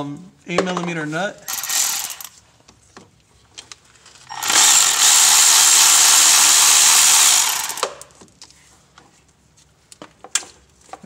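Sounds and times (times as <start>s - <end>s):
electric ratchet spinning: 1.5s - 2.4s, 4.3s - 8.2s.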